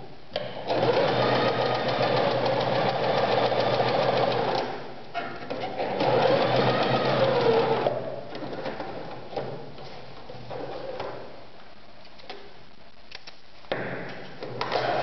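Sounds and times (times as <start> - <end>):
sewing machine stitching: 0.7 - 4.8, 5.6 - 8.9.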